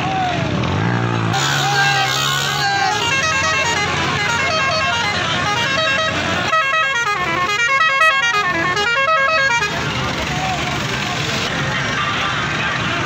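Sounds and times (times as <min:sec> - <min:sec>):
musical vehicle horn tune: 0:01.3 - 0:09.9.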